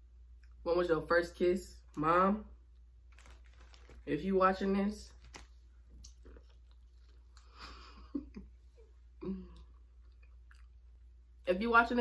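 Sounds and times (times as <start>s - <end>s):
person chewing: 5.2s - 8.4s, 9.2s - 11.2s.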